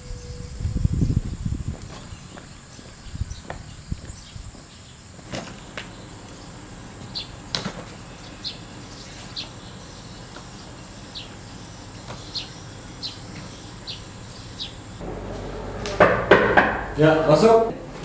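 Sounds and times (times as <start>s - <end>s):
insects whining: 0.0s - 18.0s
footsteps on concrete: 1.7s - 5.9s.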